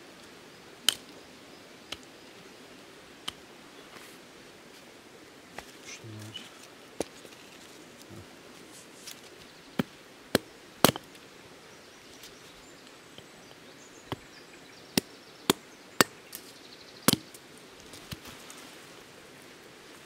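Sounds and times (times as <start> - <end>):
firewood chopping: 9.8 - 11.2, 17.1 - 17.4.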